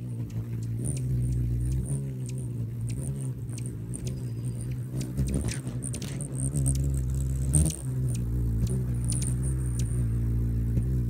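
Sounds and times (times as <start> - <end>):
hummingbird wingbeats humming: 0.0 - 11.0
high bird chips: 3.6 - 7.0.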